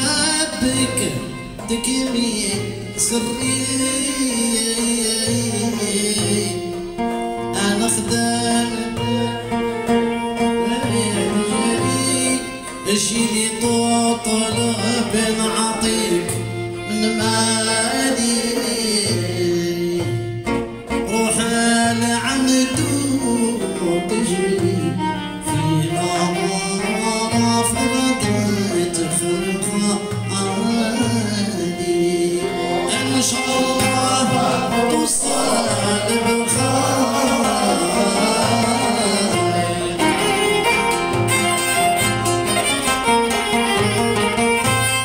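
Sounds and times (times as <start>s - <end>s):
hand drum: 0.0s - 45.0s
violin melody: 0.0s - 45.0s
person singing: 7.5s - 20.1s, 21.1s - 40.8s.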